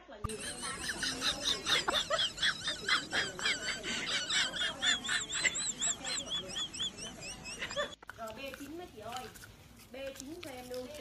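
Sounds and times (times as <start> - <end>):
birds chirping: 0.3 - 8.0.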